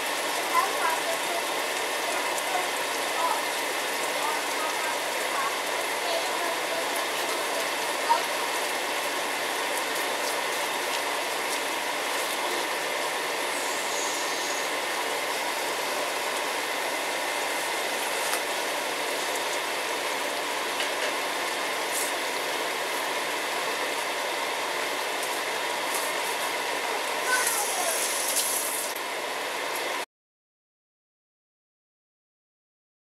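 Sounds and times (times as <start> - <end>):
mushrooms sizzling in a wok: 0.0 - 30.0.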